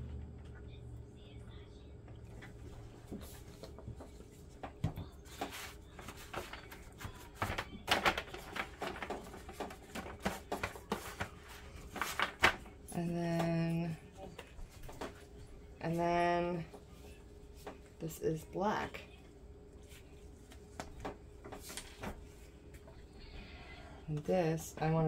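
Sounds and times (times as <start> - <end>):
foil pan crinkling: 5.2 - 13.4.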